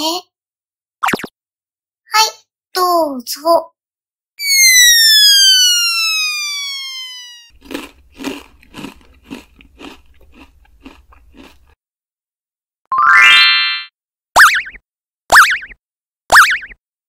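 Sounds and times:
falling whistle glide: 4.4s - 7.5s
crunchy chewing bites: 7.5s - 11.8s.

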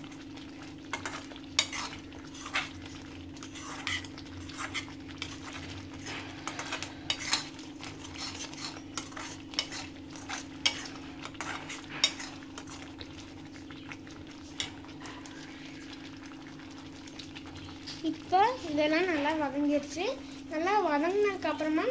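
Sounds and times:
low steady hum: 0.0s - 21.9s
metal spatula scraping a steel pan: 3.4s - 5.4s, 6.0s - 12.7s.

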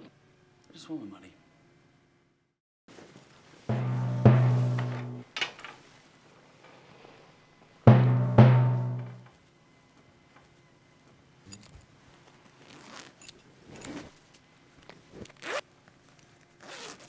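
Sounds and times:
low musical hits ringing: 3.7s - 5.2s, 7.9s - 9.3s
metal zipper pull jingling: 12.6s - 14.1s
zipper on a fabric bag: 12.6s - 14.2s, 15.2s - 15.6s, 16.6s - 17.0s.

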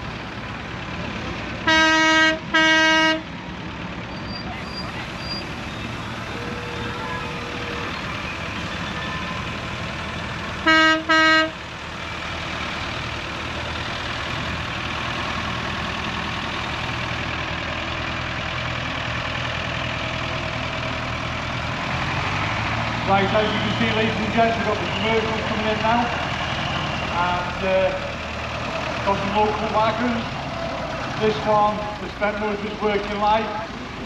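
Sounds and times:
lorry engines running: 0.0s - 34.0s
vehicle horn blasts: 1.7s - 3.2s, 6.3s - 7.9s, 10.7s - 11.6s.

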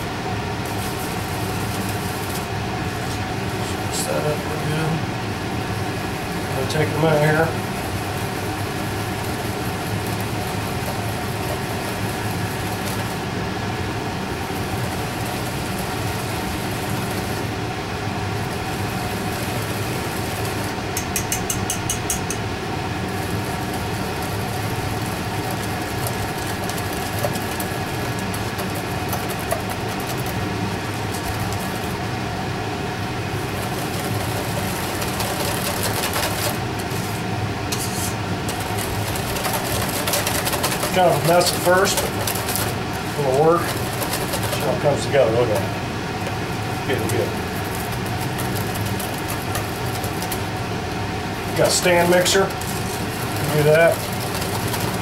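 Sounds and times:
steady mechanical hum: 0.0s - 55.0s
wire whisk beating in metal bowl: 6.1s - 17.5s, 18.4s - 32.1s, 33.0s - 37.1s, 37.7s - 50.7s, 51.3s - 55.0s
whisk clinking against bowl: 21.0s - 22.4s, 37.7s - 44.7s.

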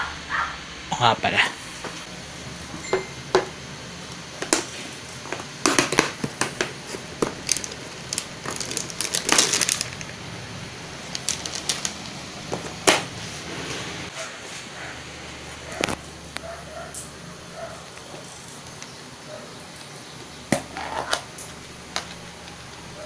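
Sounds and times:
plastic containers clattering: 5.3s - 10.2s, 11.0s - 13.2s.

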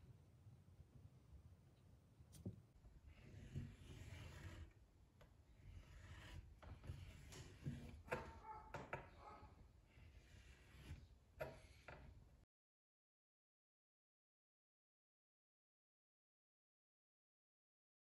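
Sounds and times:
marker scratching on wall: 2.4s - 4.8s, 5.5s - 12.2s.

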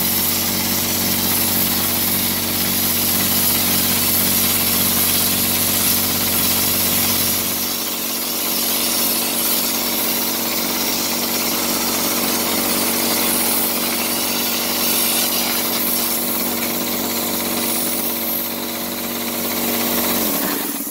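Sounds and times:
spray gun hissing: 0.0s - 20.9s
spray rig motor drone: 0.0s - 20.9s.

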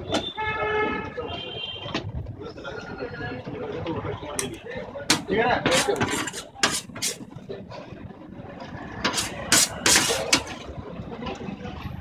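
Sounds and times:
meat being scraped: 5.1s - 7.2s, 9.0s - 10.6s
loud scraping clatters: 5.1s - 7.3s, 9.0s - 10.6s.

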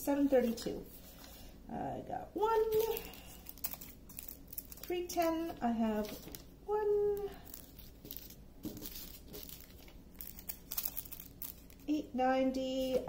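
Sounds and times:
plastic bags crinkling: 2.5s - 12.0s.

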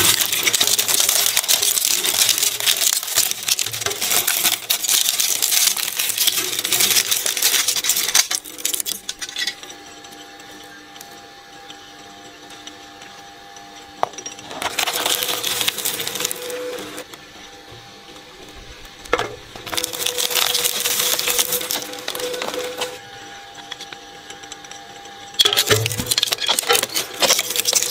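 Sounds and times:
shredder crunching plastic: 0.0s - 9.9s, 14.0s - 17.1s, 18.4s - 24.6s, 25.3s - 27.9s
shredder humming empty: 0.0s - 27.9s.

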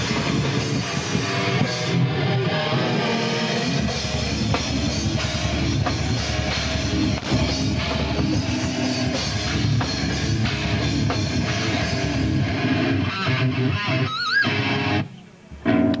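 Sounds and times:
metal band playing: 0.0s - 16.0s
high wavering guitar squeal: 13.0s - 14.8s, 15.6s - 16.0s.

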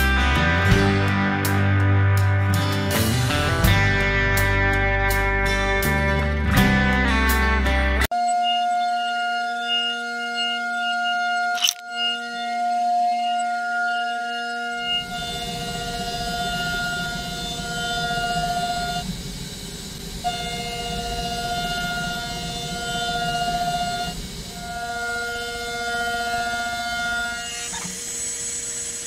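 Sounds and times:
milling machine high whine: 8.1s - 29.0s.

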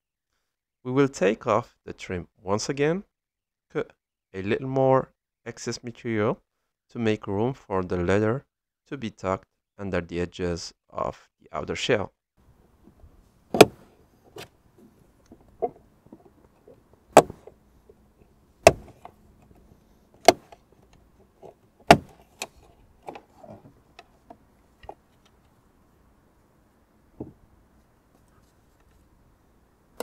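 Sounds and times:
handling noises: 12.8s - 25.7s.

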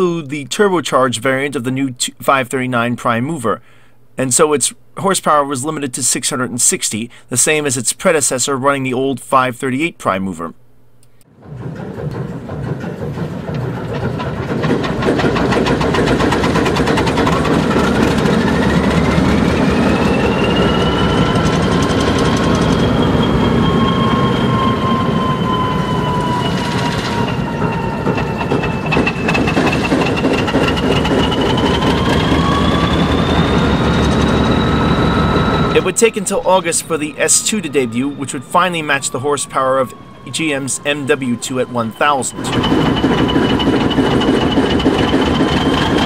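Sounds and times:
diesel engine running rough: 11.5s - 36.0s, 42.4s - 46.0s
high whine rising in pitch: 15.0s - 46.0s.

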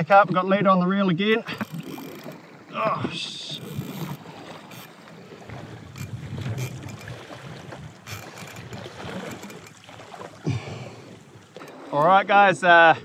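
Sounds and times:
water rushing along kayak hull: 0.0s - 13.0s
sharp water splashes: 1.5s - 12.0s
wind on microphone: 5.5s - 9.5s.

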